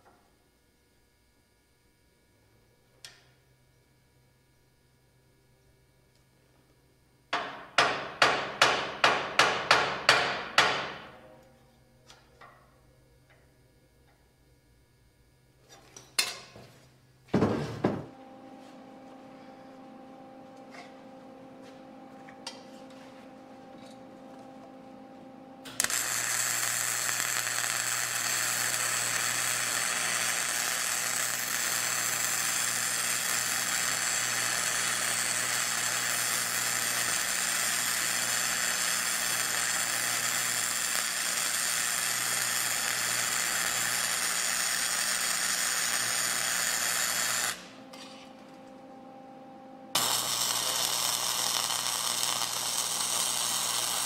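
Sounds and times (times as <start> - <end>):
welding arc crackling: 18.7 - 49.2, 49.8 - 54.0.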